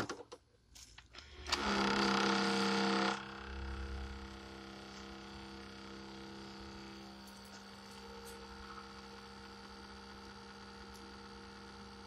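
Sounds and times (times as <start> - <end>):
electric pump humming: 1.0 - 12.0.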